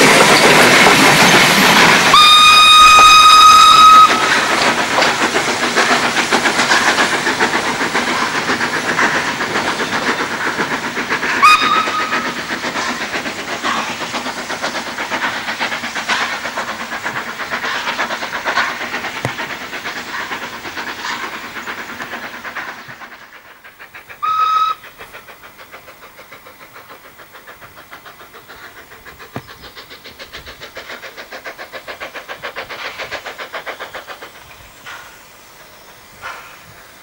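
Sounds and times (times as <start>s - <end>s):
steam locomotive exhaust beats: 0.0s - 37.0s
steam whistle blast: 2.1s - 4.3s, 11.4s - 12.2s, 24.2s - 24.8s.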